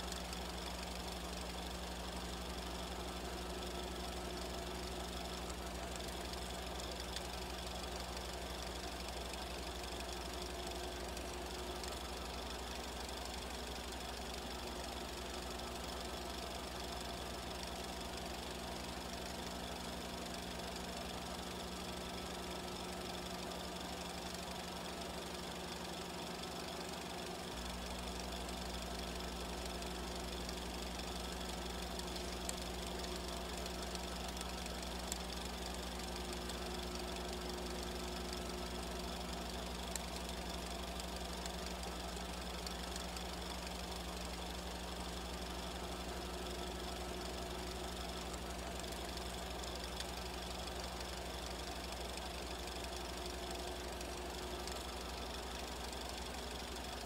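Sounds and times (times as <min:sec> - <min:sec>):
film projector clatter: 0:00.0 - 0:57.0.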